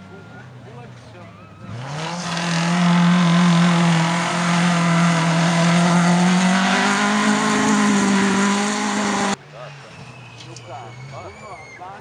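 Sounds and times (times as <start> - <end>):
rally car engine revving past: 1.7 - 9.4.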